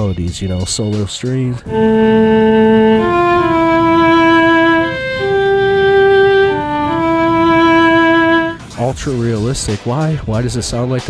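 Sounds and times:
solo strings slow melody: 0:01.7 - 0:08.7.

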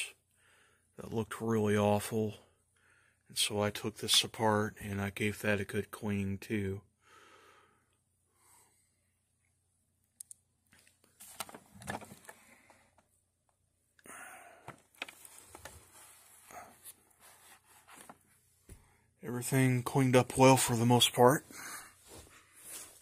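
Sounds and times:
faint breathing: 0:00.3 - 0:01.0, 0:02.4 - 0:03.3, 0:06.9 - 0:09.2, 0:12.2 - 0:13.1, 0:14.0 - 0:14.9, 0:21.4 - 0:23.0
phone handling rustles: 0:10.8 - 0:13.1, 0:14.6 - 0:18.3.

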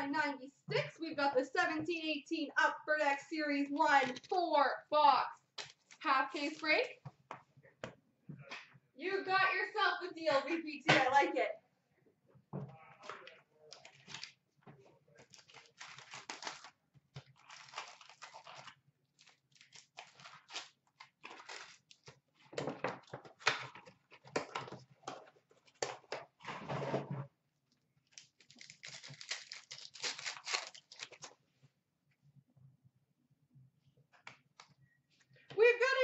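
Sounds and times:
plastic wrap crinkling and tearing: 0:15.2 - 0:22.6, 0:28.0 - 0:31.4.

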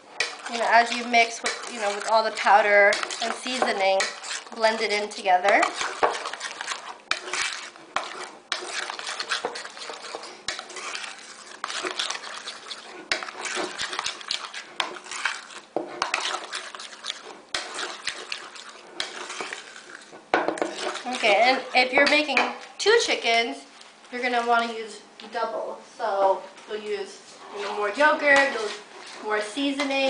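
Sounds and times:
metal spoon stirring in bowl: 0:00.0 - 0:23.4, 0:27.3 - 0:30.0.

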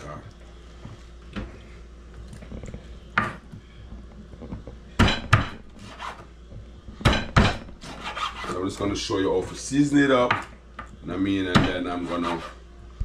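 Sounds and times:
knife chopping on wooden board: 0:05.0 - 0:06.2, 0:11.5 - 0:11.8.

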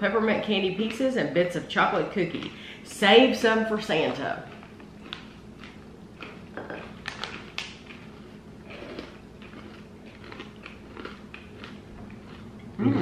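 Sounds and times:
chewing crunchy snacks: 0:04.1 - 0:13.0
snack bag crinkling: 0:04.4 - 0:12.5.

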